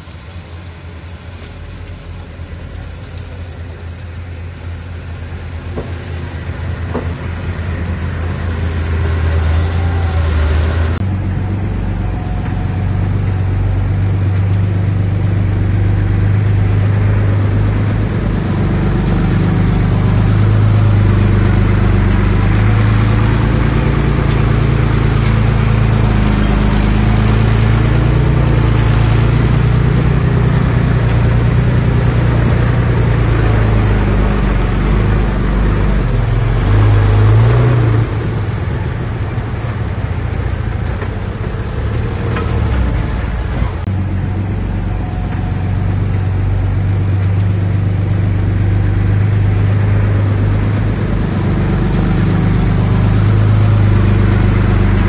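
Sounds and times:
bulldozer diesel engine working: 0.0 - 55.0.

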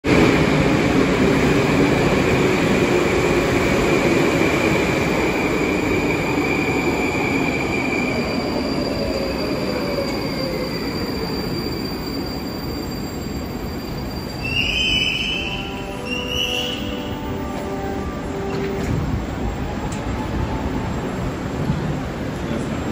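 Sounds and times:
train rail rumble: 0.1 - 22.9
high wheel squeal: 5.9 - 17.4.

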